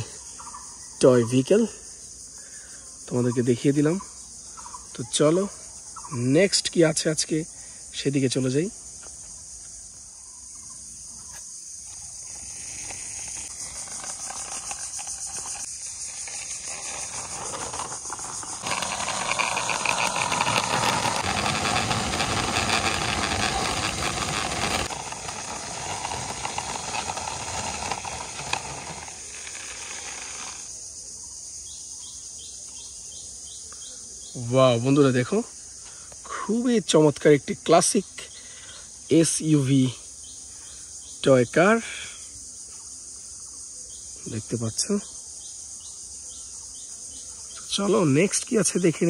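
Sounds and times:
crickets chirring: 0:00.0 - 0:49.0
toy wheels rolling on concrete: 0:11.8 - 0:30.8.

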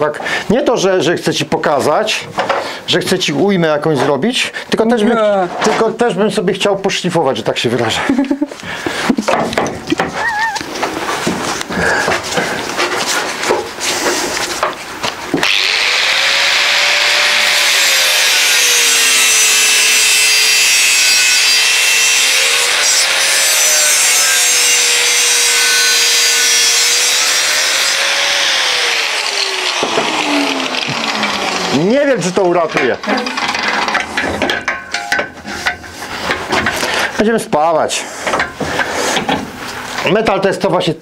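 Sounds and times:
steel tube knocks and clatter: 0:09.3 - 0:10.2, 0:32.7 - 0:36.8
angle grinder grinding steel: 0:15.4 - 0:37.1.

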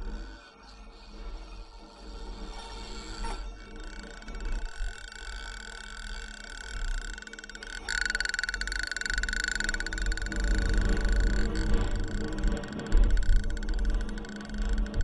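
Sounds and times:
low electronic hum: 0:00.0 - 0:15.0
fast buzzing pulses: 0:01.1 - 0:15.0
steady high electronic tone: 0:02.4 - 0:15.0.

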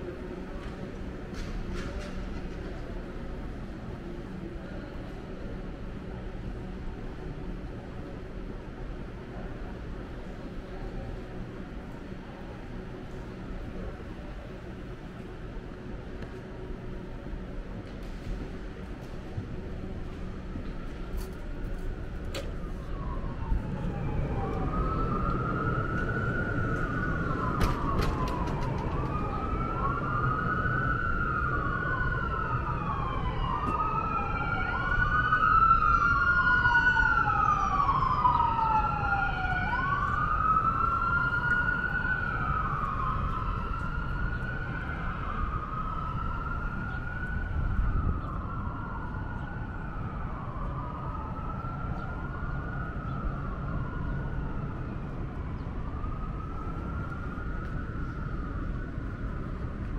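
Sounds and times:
city street rumble: 0:00.0 - 0:59.9
emergency siren wailing: 0:18.3 - 0:59.9.

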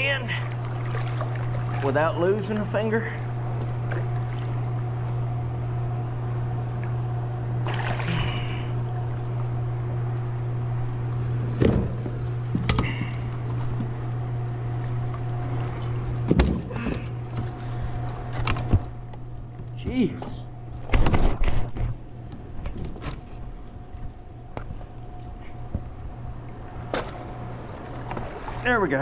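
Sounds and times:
steady low drone: 0:00.0 - 0:29.0
water splash: 0:00.3 - 0:02.7, 0:07.6 - 0:09.3.

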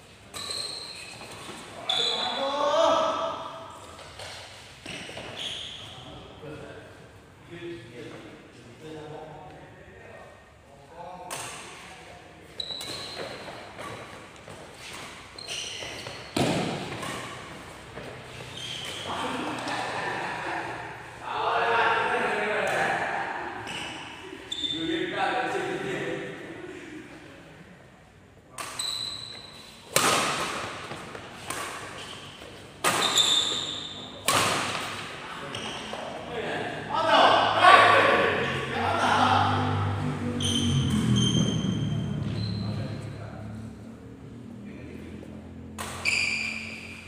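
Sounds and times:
shoes squeaking on wooden court: 0:00.1 - 0:02.6, 0:03.8 - 0:06.3, 0:12.4 - 0:19.8, 0:23.6 - 0:24.9, 0:28.6 - 0:36.3, 0:40.4 - 0:43.1, 0:45.8 - 0:47.0
racket hitting shuttlecock: 0:15.9 - 0:19.8, 0:29.9 - 0:35.2, 0:45.8 - 0:46.1
rackets striking shuttlecock: 0:29.9 - 0:31.9, 0:34.2 - 0:35.0, 0:45.8 - 0:46.1.

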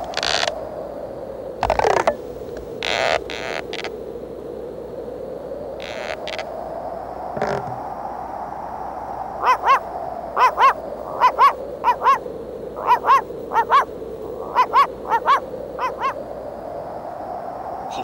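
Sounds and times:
steady hiss: 0:00.0 - 0:18.0
cartoon squeaky yelps: 0:10.4 - 0:12.2, 0:12.8 - 0:16.2.

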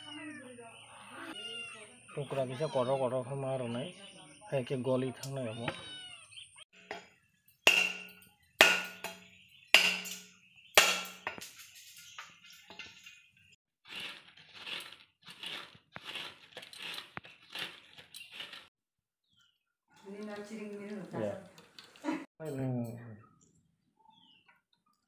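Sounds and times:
blade striking coconut: 0:07.7 - 0:11.4
rhythmic scraping of coconut: 0:10.8 - 0:18.7.

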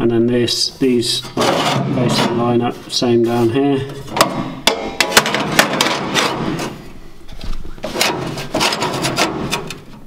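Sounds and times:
metal plates scraping and knocking: 0:01.1 - 0:06.9, 0:07.8 - 0:10.0.

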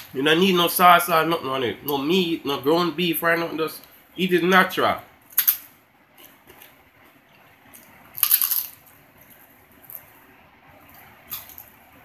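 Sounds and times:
teeth crunching tostada: 0:11.0 - 0:11.7.

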